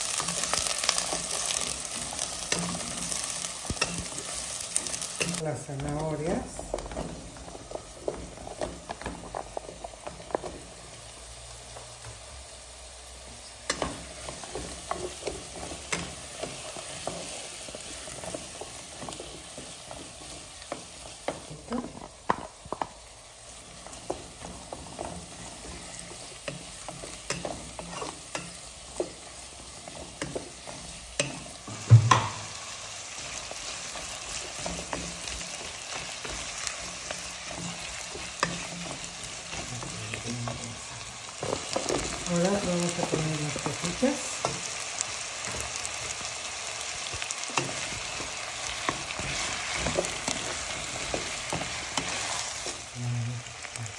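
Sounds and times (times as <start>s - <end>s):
wooden spoon stirring and scraping: 0.0s - 12.5s, 13.6s - 52.9s
vegetables sizzling in oil: 0.0s - 53.9s
spoon knocking on pot: 31.2s - 32.5s.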